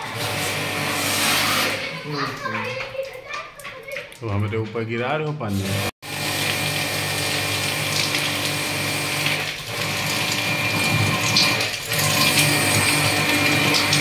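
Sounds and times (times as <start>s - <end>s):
pressure washer running: 0.0s - 2.2s, 5.5s - 14.0s.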